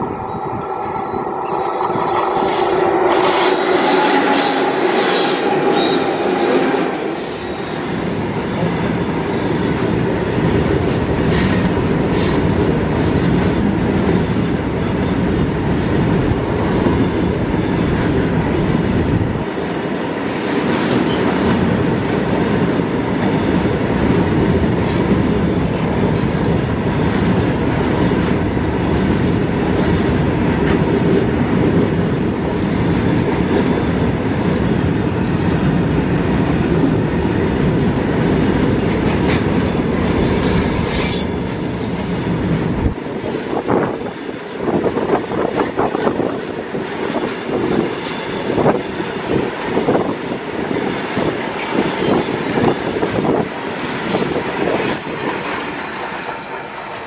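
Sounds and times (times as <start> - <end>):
train wheels rumbling on rails: 0.0 - 57.0
sharp high wheel sounds: 0.5 - 7.7.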